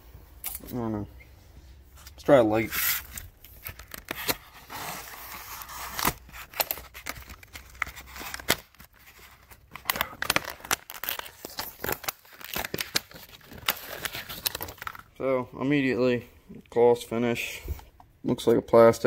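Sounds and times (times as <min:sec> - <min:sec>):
plastic blister packaging crackling: 0:05.4 - 0:15.2.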